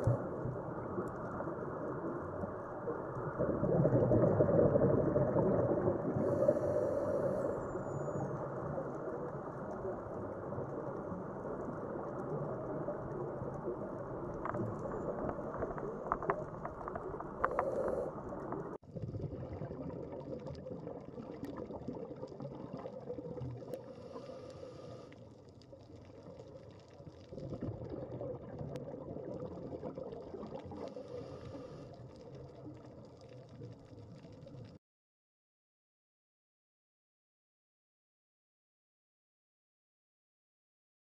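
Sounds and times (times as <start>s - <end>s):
bubbling: 0.0s - 34.8s
muffled underwater water rush: 0.0s - 34.8s
sharp clicks underwater: 14.3s - 18.8s.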